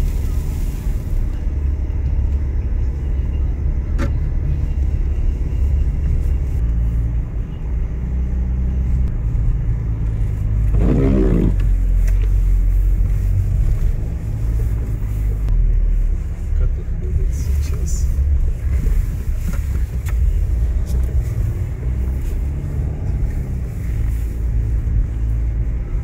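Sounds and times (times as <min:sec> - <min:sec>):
car engine and road rumble: 0:00.0 - 0:26.0.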